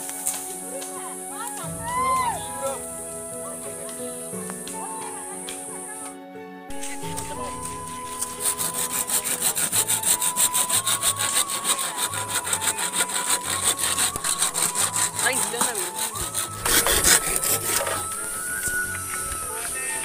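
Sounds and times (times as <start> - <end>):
hand saw cutting bamboo: 0.0 - 0.5, 6.7 - 20.0.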